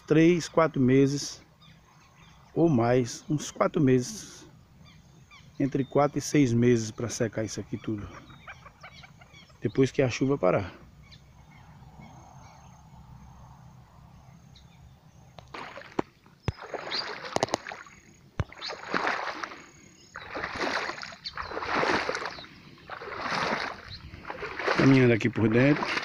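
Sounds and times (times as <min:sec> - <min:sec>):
footsteps splashing through floodwater: 0:15.4 - 0:26.0.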